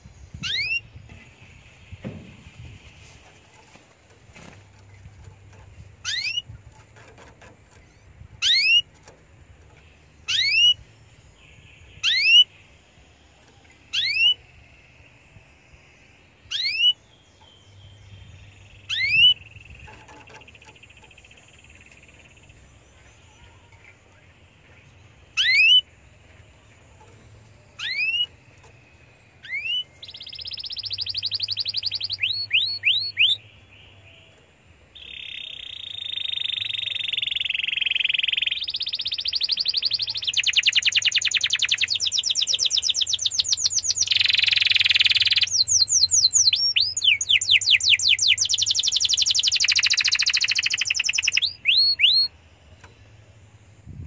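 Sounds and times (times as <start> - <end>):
canary rising whistled calls: 25.4 - 25.8
canary rapid trill: 35.0 - 52.3.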